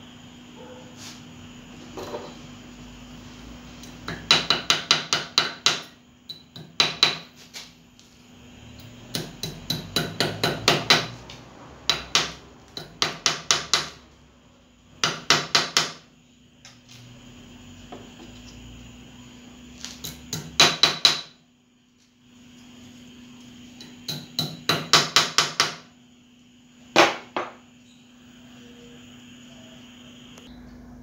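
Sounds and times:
hammer tapping metal: 3.8 - 7.3, 8.8 - 11.2, 11.9 - 14.0, 20.0 - 21.3, 23.8 - 25.8.

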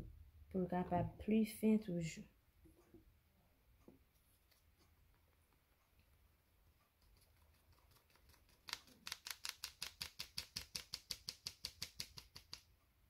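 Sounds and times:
spatula tapping plastic sieve: 8.7 - 12.8.

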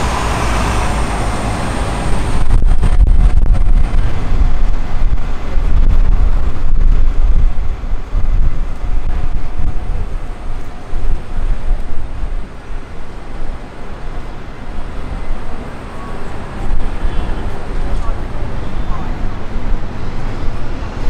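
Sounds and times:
low rumble of city street: 0.0 - 21.0.

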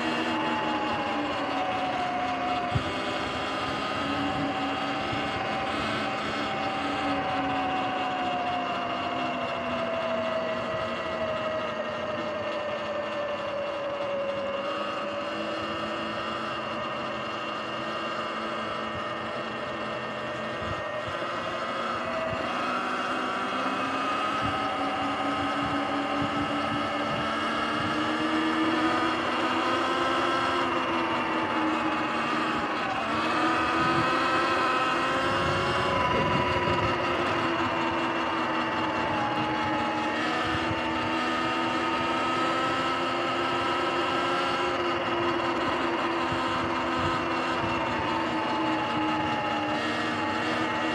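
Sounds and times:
electric dirt bike motor whining: 0.0 - 50.9
tyre and wind noise: 35.1 - 41.2.

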